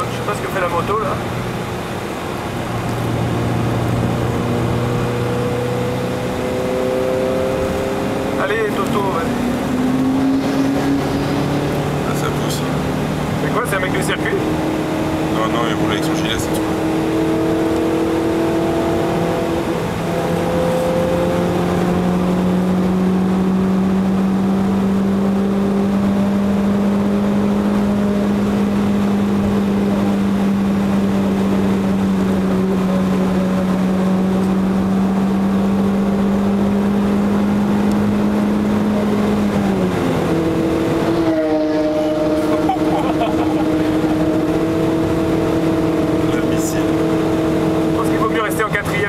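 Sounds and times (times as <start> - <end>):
car engine revving: 0.0 - 49.0
wind and tyre noise: 0.0 - 49.0.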